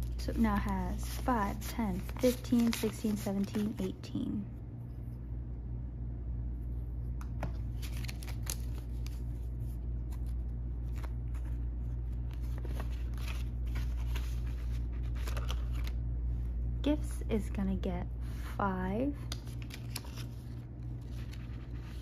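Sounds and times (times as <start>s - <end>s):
banknotes rustling and crinkling: 0.0s - 4.1s, 7.5s - 16.0s, 18.3s - 22.0s
steady low hum: 0.0s - 22.0s.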